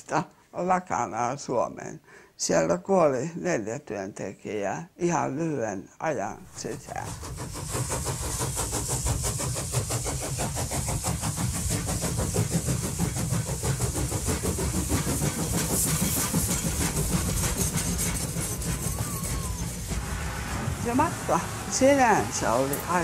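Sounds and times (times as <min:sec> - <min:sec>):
steam hissing: 0:06.4 - 0:23.0
steam locomotive chuffing: 0:06.4 - 0:23.0.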